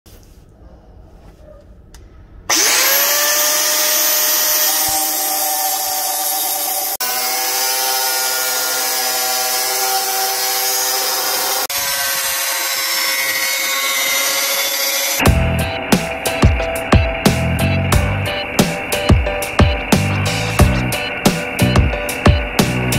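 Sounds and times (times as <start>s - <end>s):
angle grinder cutting steel: 2.5s - 16.8s.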